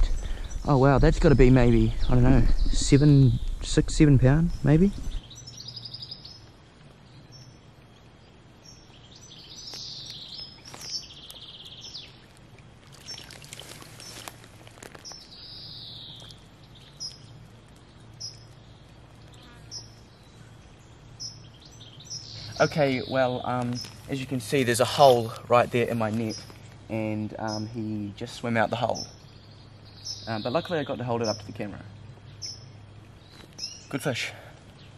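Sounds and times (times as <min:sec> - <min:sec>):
small birds chirping: 0:00.0 - 0:34.9.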